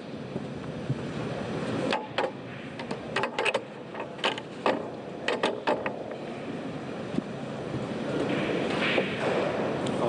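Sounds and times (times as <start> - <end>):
pool balls clicking: 1.7 - 6.2.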